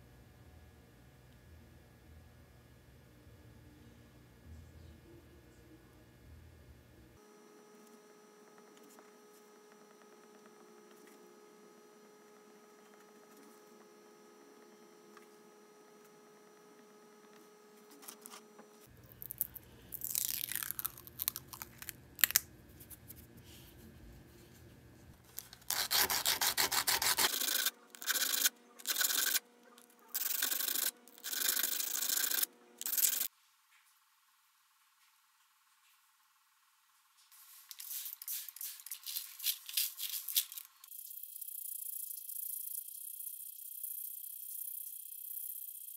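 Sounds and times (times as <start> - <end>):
faint steady hum: 0.0 - 45.9
rough rubbing on plastic: 25.7 - 29.4.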